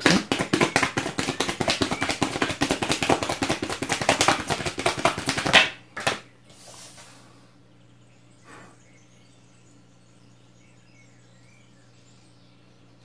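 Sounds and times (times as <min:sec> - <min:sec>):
cards being shuffled: 0:00.0 - 0:06.2.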